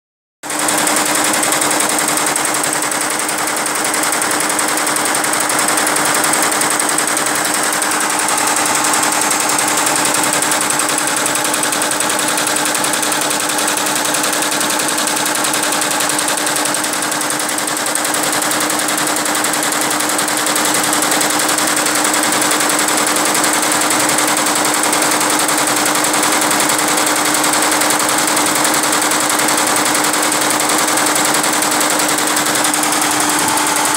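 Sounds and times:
embroidery machine needle rattling: 0.5s - 33.9s
embroidery machine hum: 0.6s - 19.4s, 28.4s - 33.9s.

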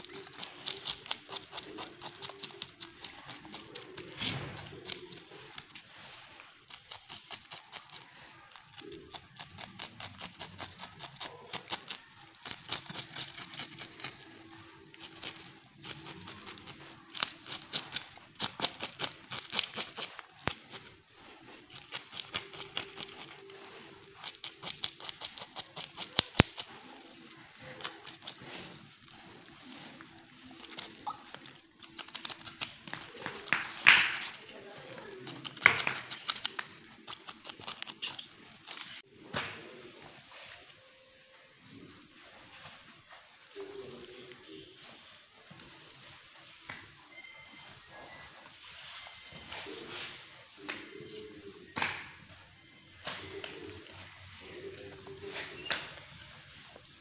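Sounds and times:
knife scraping fish scales: 6.5s - 14.4s, 15.0s - 39.0s.

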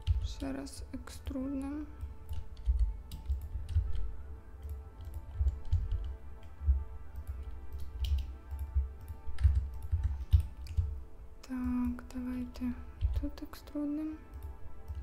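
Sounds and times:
keyboard and mouse clicking: 0.0s - 0.4s, 2.0s - 12.0s, 13.0s - 13.4s
soft music with pulsing bass: 0.0s - 15.0s.

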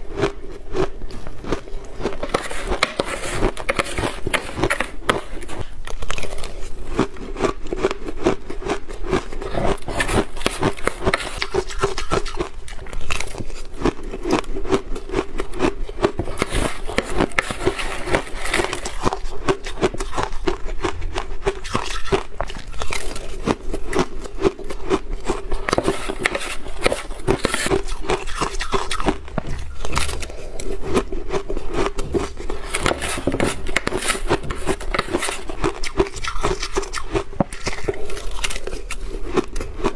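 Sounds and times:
spoon scraping ice: 2.0s - 6.7s, 9.2s - 13.7s, 16.1s - 20.6s, 25.3s - 39.2s.

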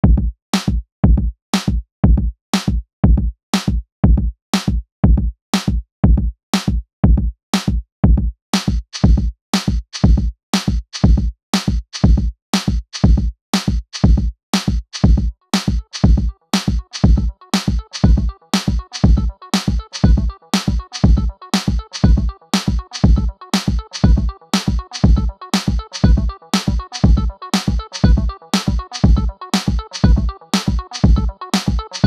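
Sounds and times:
electronic music with drum-machine beat: 14.9s - 32.0s.

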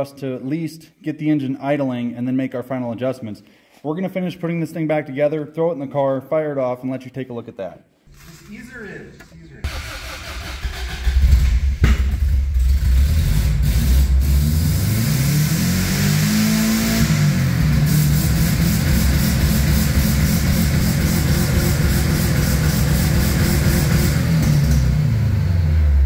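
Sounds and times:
car engine revving and idling: 9.6s - 26.0s.

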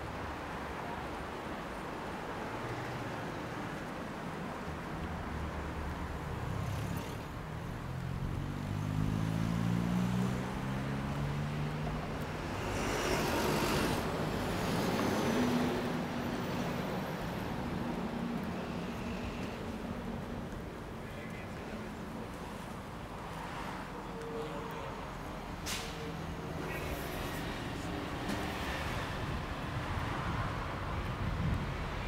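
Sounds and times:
vehicle passing close by: 6.4s - 16.5s
vehicle engine accelerating: 6.5s - 14.3s.

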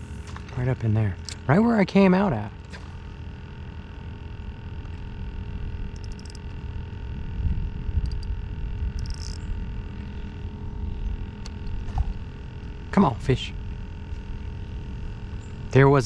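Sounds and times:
wind rumbling on microphone: 5.2s - 12.8s
faint high clicking: 8.0s - 9.6s.

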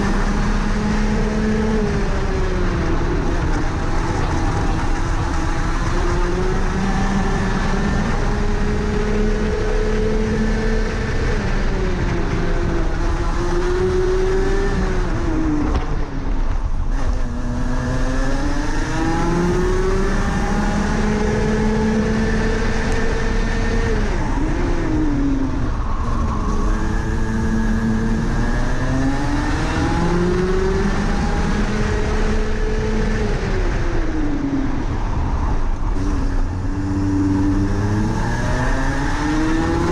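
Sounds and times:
kart engine at racing speed: 0.0s - 39.9s.

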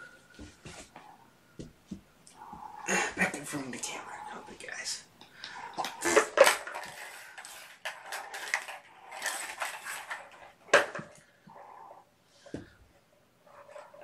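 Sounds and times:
plastic toys rattling and scraping: 2.4s - 12.6s, 13.4s - 14.0s
plastic toy clack: 5.8s - 11.2s.

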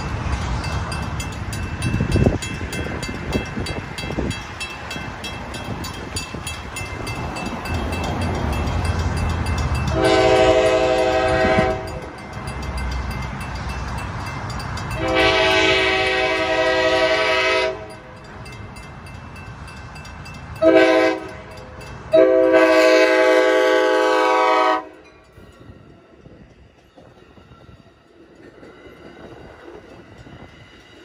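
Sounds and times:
crossing warning bell ringing: 0.0s - 31.0s
street traffic: 0.0s - 31.0s
train horn blast: 9.9s - 12.1s, 14.9s - 18.0s, 20.6s - 25.0s.

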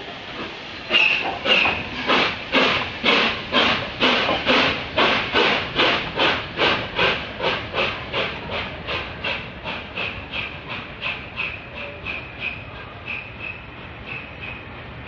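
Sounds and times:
steam locomotive exhaust chuffs: 0.0s - 15.0s.

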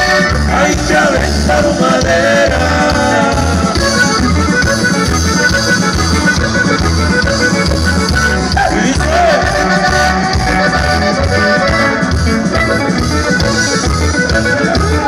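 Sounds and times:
live band music over pa: 0.0s - 15.0s
steady bass beat: 0.0s - 15.0s.

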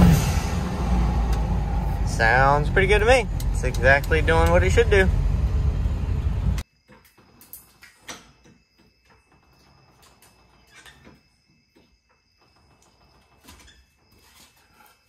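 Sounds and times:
diesel truck engine running: 0.0s - 6.6s.

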